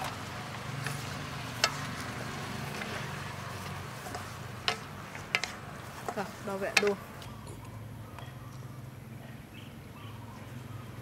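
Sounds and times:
curry sizzling in a wok: 0.0 - 6.4
wooden spatula stirring: 0.0 - 7.0.

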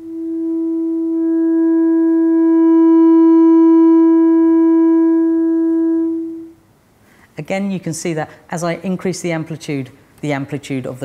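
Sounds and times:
sine-wave tone from loudspeaker: 0.0 - 6.6.

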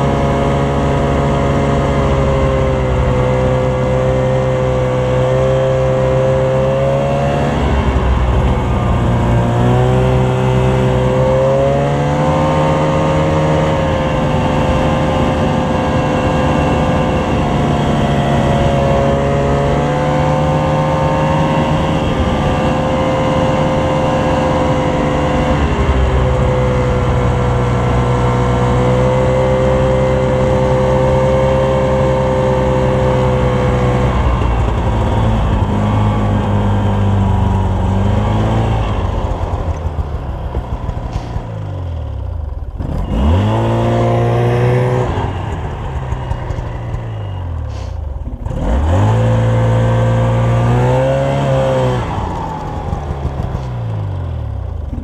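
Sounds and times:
snowmobile engine running: 0.0 - 55.0.

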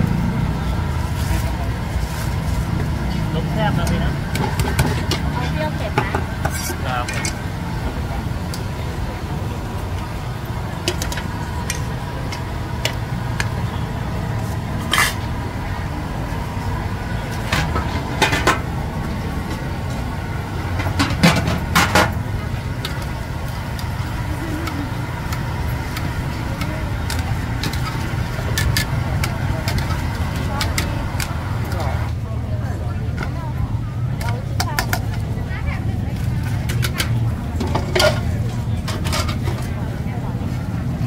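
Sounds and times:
street traffic rumble: 0.0 - 41.0
metal pots and utensils clinking: 3.8 - 7.5, 14.8 - 15.3, 17.4 - 18.7, 20.6 - 32.1, 36.2 - 39.7.

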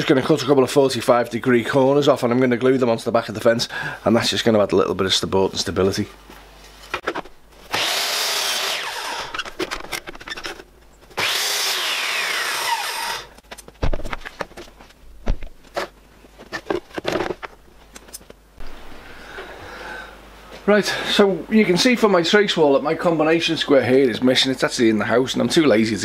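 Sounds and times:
mitre saw cutting wood: 7.7 - 9.4, 11.2 - 13.4.

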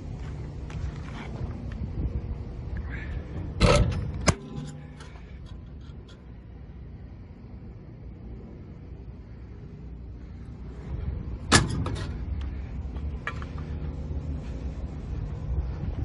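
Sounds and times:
low steady rumble: 0.0 - 16.0
metal door slamming shut: 11.5 - 12.1.

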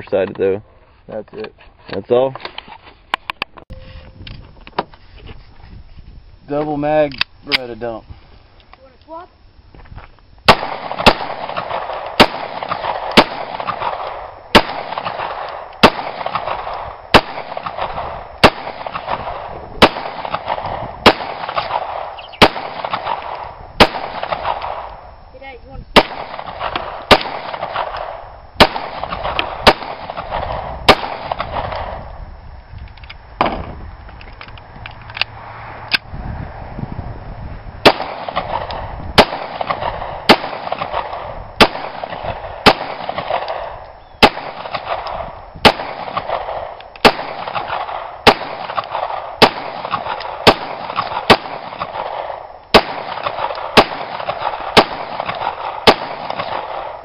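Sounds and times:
pistol shots: 10.5 - 25.0, 26.0 - 32.0, 37.8 - 57.0.

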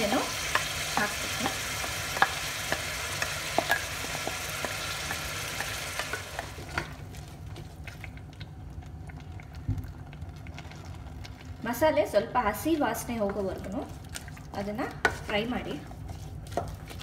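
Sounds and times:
vegetables sizzling in oil: 0.0 - 7.0
wooden spoon scraping pot: 13.0 - 17.0.

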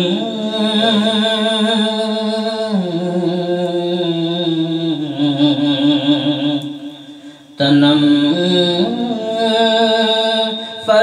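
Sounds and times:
man singing devotional song: 0.0 - 11.0.

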